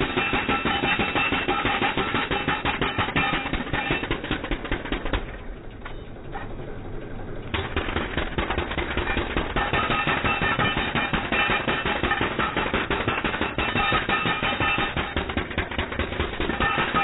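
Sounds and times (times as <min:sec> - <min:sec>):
metallic ringing: 0:00.0 - 0:04.2, 0:09.0 - 0:17.0
jackhammer breaking concrete: 0:00.0 - 0:05.6, 0:07.5 - 0:17.0.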